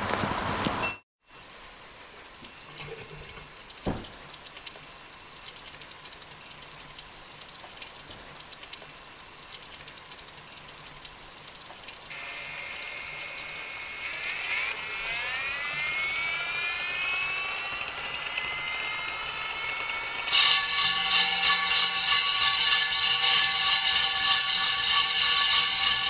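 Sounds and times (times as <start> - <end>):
water trickling: 2.4 - 14.4
core drill motor whine: 12.1 - 26.0.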